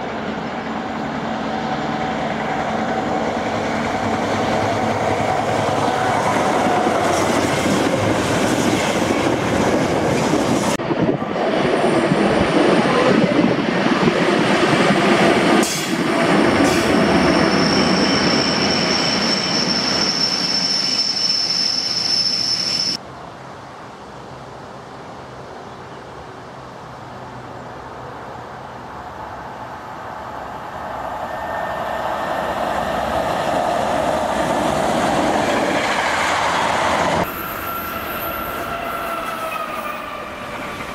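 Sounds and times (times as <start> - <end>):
freight train rumbling past: 0.0 - 24.6, 25.2 - 40.9
high-pitched wheel squeal: 17.3 - 23.0, 37.2 - 40.8.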